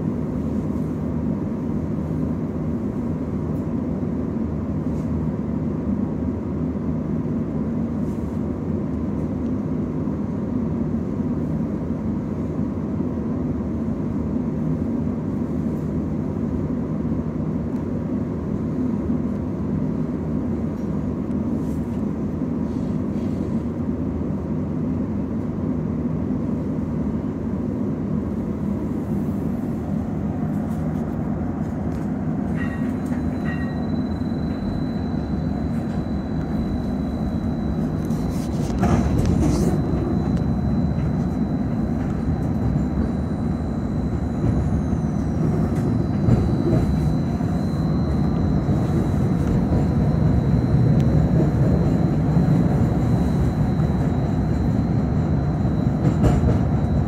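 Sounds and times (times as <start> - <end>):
streetcar humming: 0.0 - 57.0
streetcar running on rails: 0.0 - 57.0
high whine: 28.9 - 57.0.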